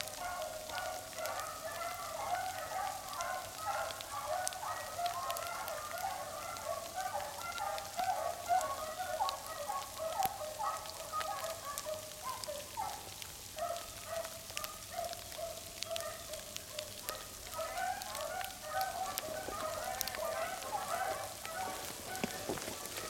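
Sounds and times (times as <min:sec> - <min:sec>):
frozen rain ticking on coat: 0:00.0 - 0:23.0
dogs baying: 0:00.1 - 0:23.0.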